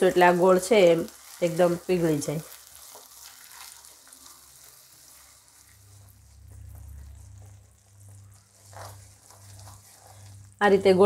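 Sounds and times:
faint sizzling in a pan: 0:00.0 - 0:11.0
spatula scraping a pan: 0:02.4 - 0:10.6
low hum: 0:05.6 - 0:11.0.

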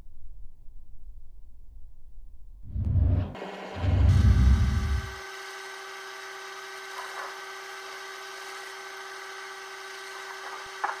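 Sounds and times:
mechanical hum: 0:02.5 - 0:11.0.

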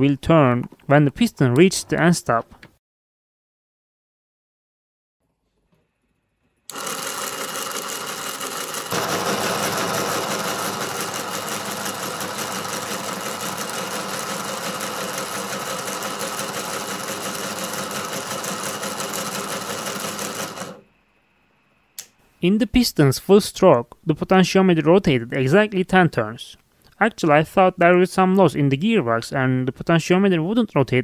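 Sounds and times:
electric motor mechanical whir: 0:06.7 - 0:20.8.

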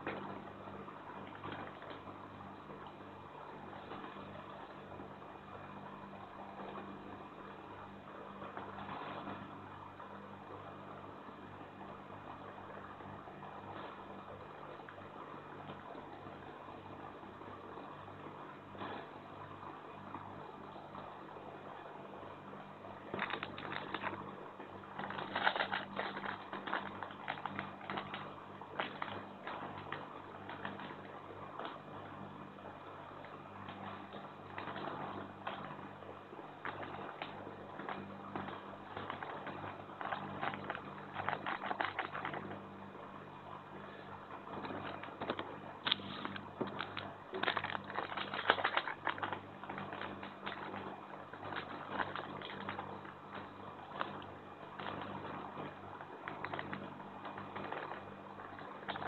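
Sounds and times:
steady low hum: 0:00.0 - 0:59.0
plastic sachets crinkling and tearing: 0:23.2 - 0:24.2, 0:25.0 - 0:30.9, 0:39.0 - 0:42.4, 0:44.7 - 0:53.0, 0:56.3 - 0:58.0.

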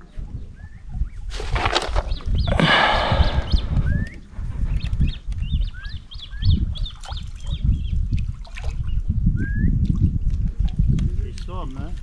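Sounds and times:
birds singing: 0:00.0 - 0:10.3
loud low rumble: 0:02.5 - 0:04.2.

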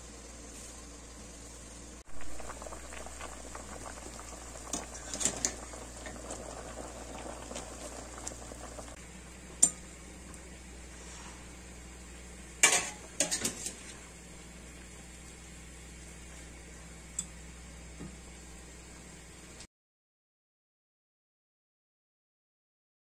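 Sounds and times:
water bubbling at a boil: 0:02.0 - 0:09.0.

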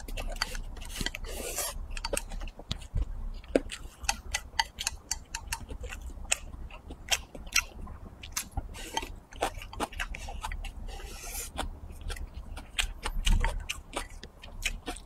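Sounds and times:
person chewing food: 0:00.0 - 0:15.0
wet lip-smacking clicks: 0:01.9 - 0:10.6.

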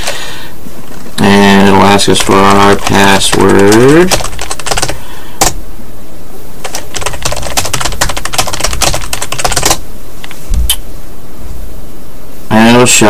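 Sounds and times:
computer keyboard typing: 0:01.8 - 0:05.6, 0:06.6 - 0:09.8.

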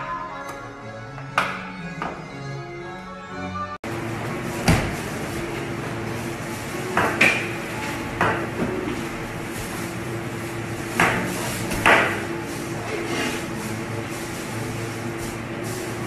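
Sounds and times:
steady background hum: 0:00.0 - 0:16.0.

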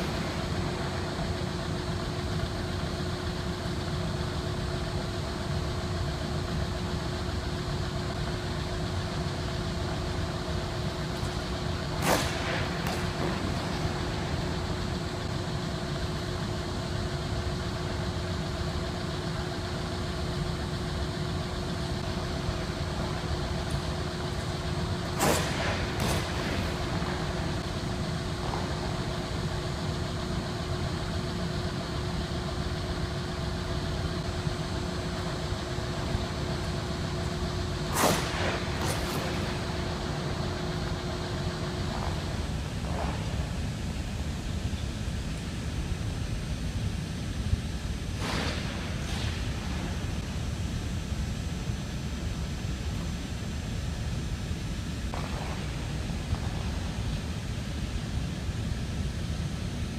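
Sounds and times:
machinery hum: 0:00.0 - 0:59.9
skate blades hitting ice: 0:11.2 - 0:14.9, 0:25.1 - 0:29.4, 0:37.9 - 0:43.6, 0:48.2 - 0:50.1, 0:55.1 - 0:57.3.

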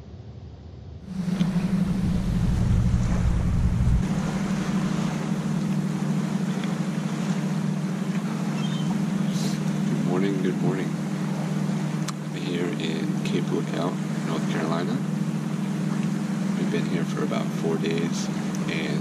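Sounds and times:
wind rumbling on microphone: 0:00.0 - 0:10.2
low mechanical hum: 0:00.0 - 0:19.0.

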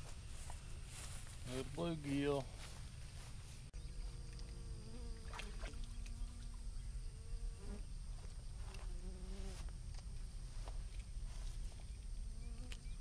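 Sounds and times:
flying insect buzzing: 0:03.8 - 0:09.7, 0:11.4 - 0:13.0.

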